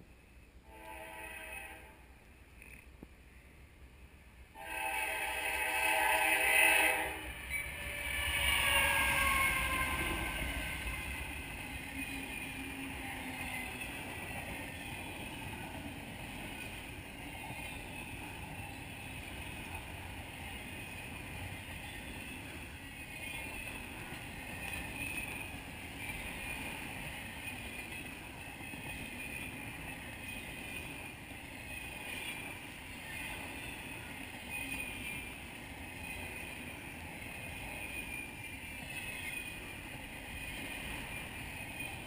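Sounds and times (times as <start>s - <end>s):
locomotive horn blasts: 0.6s - 2.1s, 4.6s - 10.8s
freight cars rumbling on rails: 4.6s - 42.0s.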